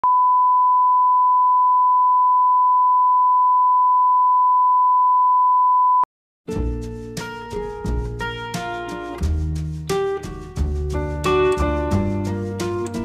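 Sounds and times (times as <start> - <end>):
music: 6.5 - 13.0.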